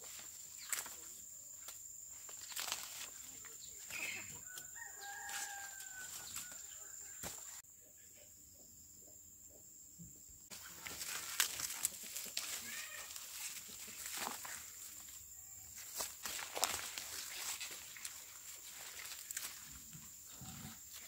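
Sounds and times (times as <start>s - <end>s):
rustling leaves: 0.0s - 7.6s, 10.5s - 21.0s
plants snapping: 1.7s - 3.2s, 10.5s - 14.7s, 15.9s - 19.7s
rooster crowing: 4.1s - 7.2s.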